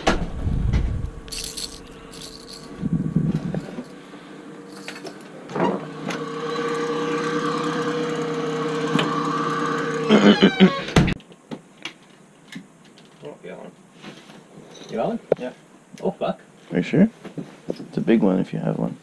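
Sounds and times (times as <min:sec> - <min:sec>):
motor humming steadily: 0:00.3 - 0:11.1
short metallic rattles: 0:01.2 - 0:04.0.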